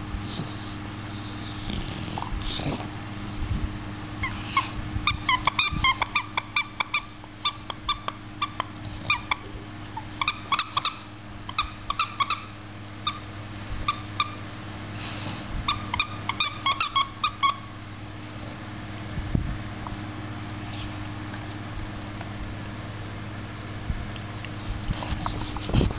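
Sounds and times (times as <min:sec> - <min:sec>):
dog toy squeaking: 0:04.2 - 0:09.4, 0:10.0 - 0:14.4, 0:15.7 - 0:17.7.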